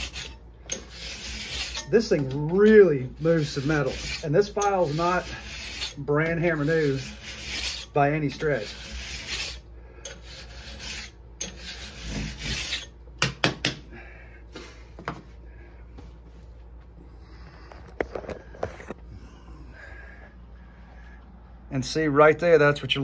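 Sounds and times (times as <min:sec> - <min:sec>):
file rasping along steel: 0:00.0 - 0:13.0.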